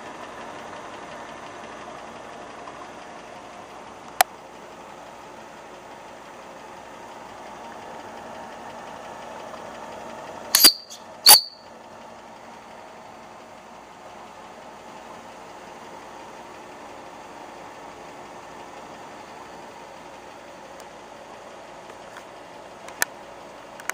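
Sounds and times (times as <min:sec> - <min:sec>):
short sharp high-pitched sounds: 0:10.6 - 0:11.6.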